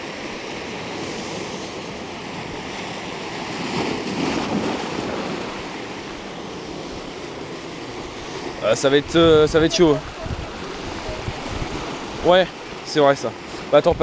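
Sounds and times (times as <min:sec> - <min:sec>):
surf breaking over rocks: 0:00.0 - 0:14.0.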